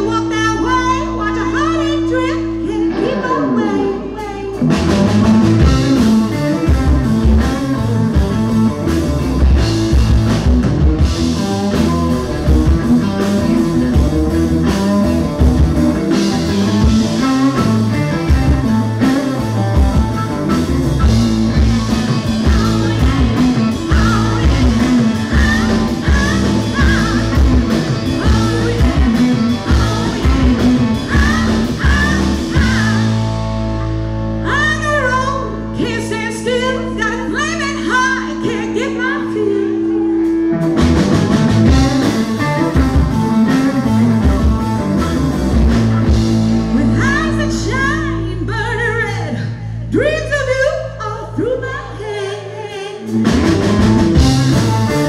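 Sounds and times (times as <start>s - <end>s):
rock band playing loudly: 0.0s - 48.9s, 53.0s - 55.0s
women singing: 22.3s - 33.2s, 50.0s - 53.2s.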